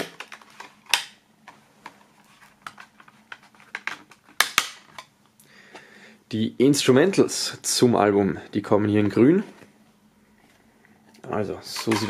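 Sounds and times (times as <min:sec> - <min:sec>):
plastic clicks of cd case: 0:00.0 - 0:02.0, 0:02.6 - 0:05.1.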